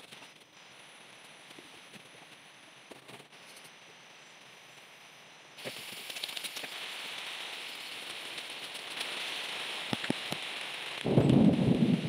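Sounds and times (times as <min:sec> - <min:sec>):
rain pattering on leaves: 0:05.6 - 0:12.0
sharp cracks: 0:08.0 - 0:11.5.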